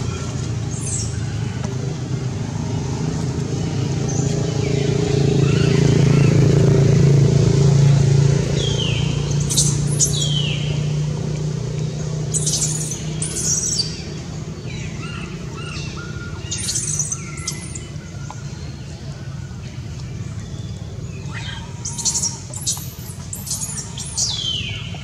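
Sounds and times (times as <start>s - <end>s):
low engine drone: 0.0s - 25.0s
high chirping bird calls: 8.6s - 10.9s, 12.3s - 18.7s, 21.1s - 25.0s.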